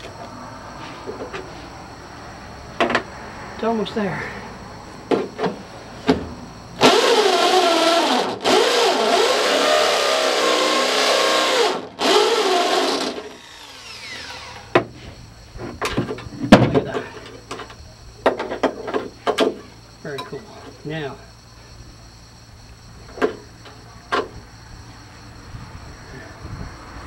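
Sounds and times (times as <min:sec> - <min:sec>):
electric drill boring into steel: 0:06.8 - 0:14.7.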